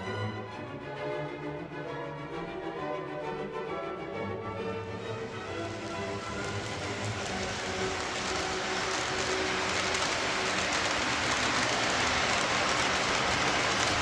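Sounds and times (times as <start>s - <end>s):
toy train rolling on track: 5.0s - 14.0s.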